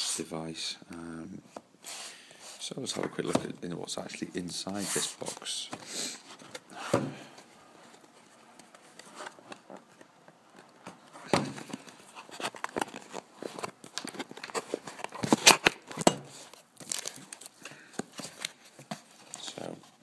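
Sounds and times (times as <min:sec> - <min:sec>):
cardboard box rustling: 0:04.8 - 0:20.0.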